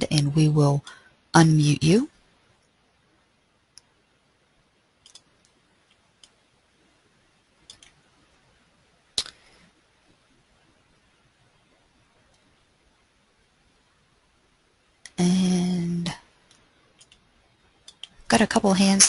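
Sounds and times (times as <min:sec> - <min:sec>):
sharp computer clicks: 0:05.0 - 0:05.6, 0:07.6 - 0:08.0, 0:17.0 - 0:18.2.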